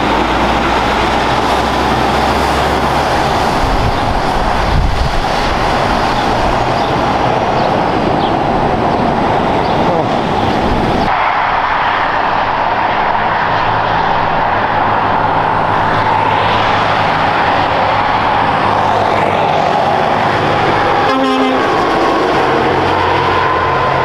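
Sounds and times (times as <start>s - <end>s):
truck driving past: 0.0s - 24.0s
truck horn toot: 21.0s - 22.0s.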